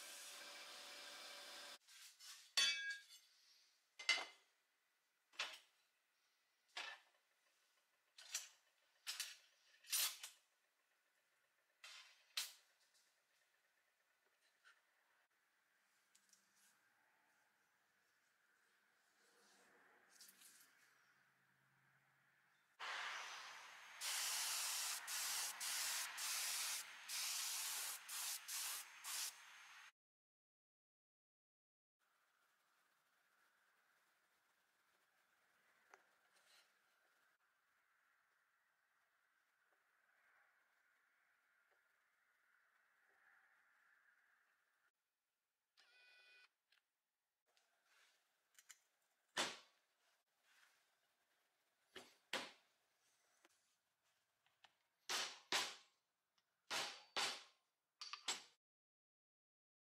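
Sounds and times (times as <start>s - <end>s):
sandblaster hiss: 22.8s - 29.9s.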